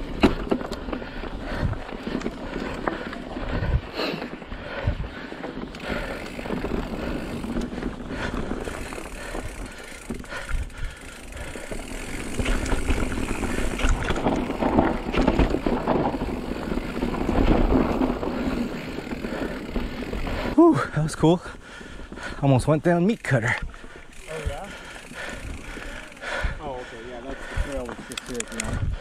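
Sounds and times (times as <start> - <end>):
bike chain and frame rattling: 0.0 - 29.0
bike tyres grinding over rock: 0.0 - 29.0.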